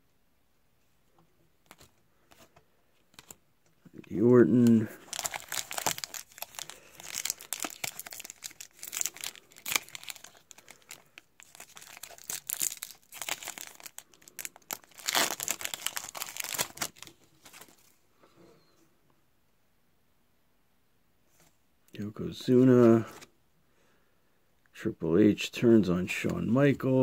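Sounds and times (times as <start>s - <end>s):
foil wrapper crinkling and tearing: 4.4s - 17.9s.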